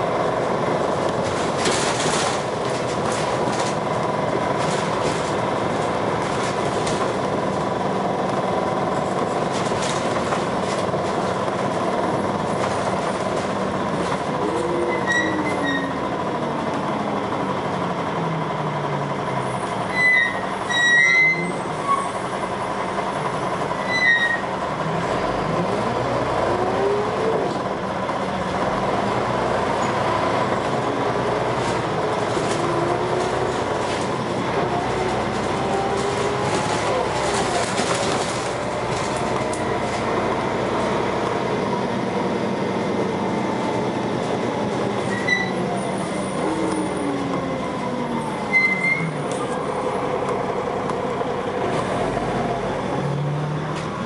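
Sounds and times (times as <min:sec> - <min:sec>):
bus diesel engine: 0:00.0 - 0:54.0
short high squeals: 0:14.9 - 0:16.0, 0:19.9 - 0:22.2, 0:45.1 - 0:45.6, 0:48.5 - 0:49.2.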